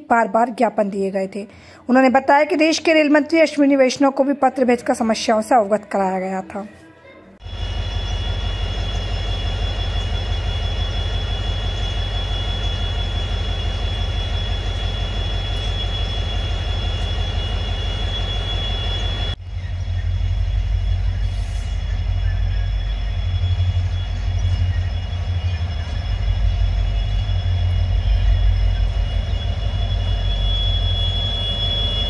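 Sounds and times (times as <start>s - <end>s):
diesel locomotive rumble: 7.4s - 32.0s
thin steady whine: 7.4s - 32.0s.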